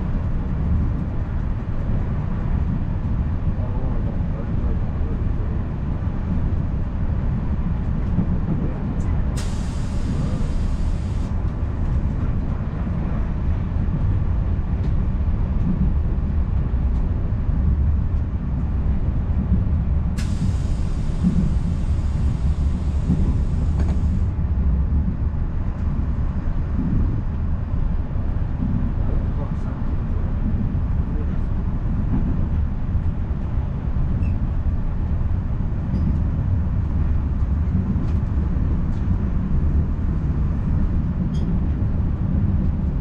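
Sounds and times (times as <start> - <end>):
train rumble inside carriage: 0.0 - 43.0
high hiss: 9.4 - 11.3, 20.2 - 24.3.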